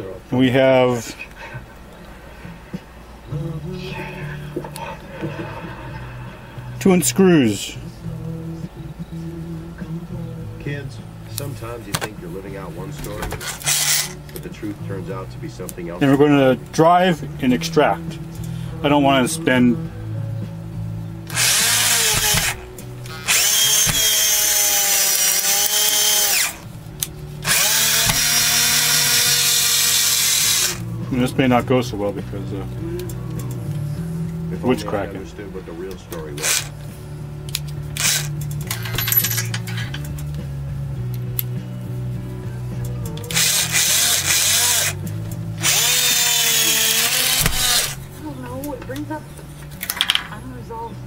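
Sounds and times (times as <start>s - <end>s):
low steady hum: 0.0s - 43.6s
cordless drill whining: 13.4s - 14.2s, 21.3s - 26.6s, 27.4s - 30.8s, 36.4s - 36.7s, 38.0s - 38.4s, 43.3s - 45.0s, 45.6s - 48.0s.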